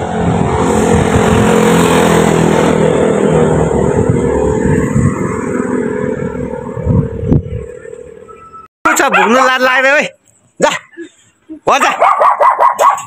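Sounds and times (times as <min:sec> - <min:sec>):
motorcycle engine passing by: 0:00.0 - 0:08.2.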